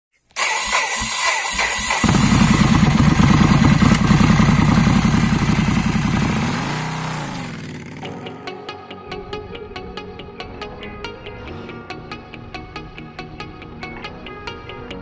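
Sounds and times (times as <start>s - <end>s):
starter motor cranking: 0.3s - 8.1s
motorcycle engine idling: 0.4s - 8.2s.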